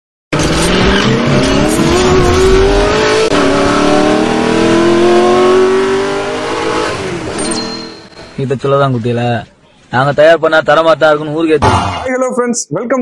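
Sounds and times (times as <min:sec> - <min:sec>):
car engine accelerating hard: 0:00.4 - 0:07.3.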